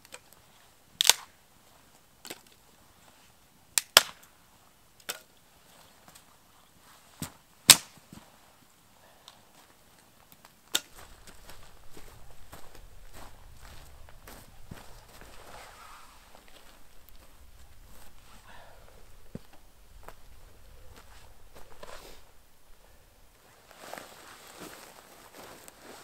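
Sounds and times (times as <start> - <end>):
dry wood cracking: 1.0 - 1.3, 3.8 - 4.3, 10.3 - 22.0.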